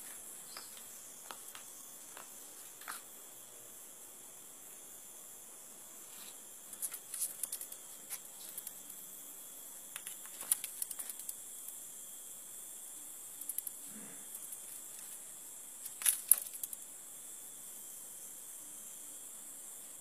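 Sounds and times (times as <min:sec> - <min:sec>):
high-pitched insect drone: 0:00.0 - 0:20.0.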